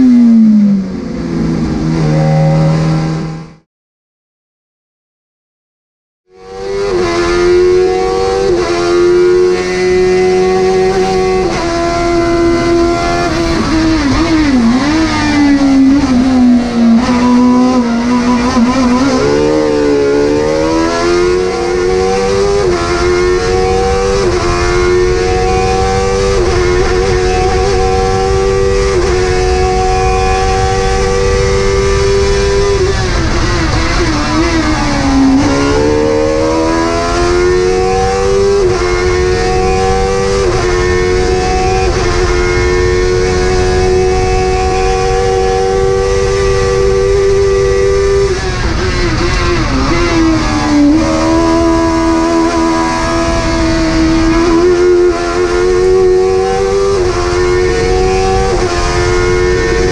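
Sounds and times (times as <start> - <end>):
race car engine revving: 0.0 - 3.6, 6.3 - 59.9.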